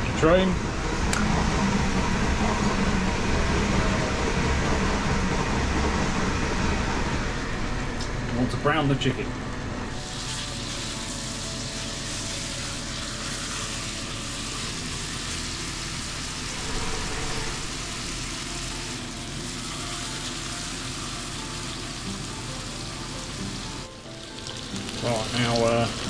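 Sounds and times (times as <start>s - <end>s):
chicken sizzling in a frying pan: 9.9s - 16.5s, 17.7s - 26.0s.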